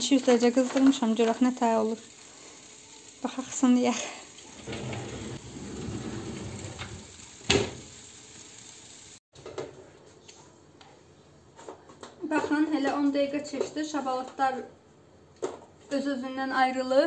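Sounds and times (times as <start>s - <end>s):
tray scraping into oven: 4.6s - 7.8s
oven door shutting: 4.6s - 7.9s.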